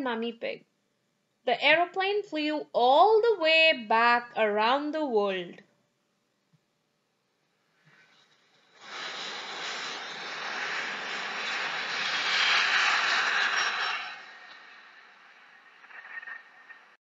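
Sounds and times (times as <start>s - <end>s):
aircraft rushing past: 8.8s - 16.0s.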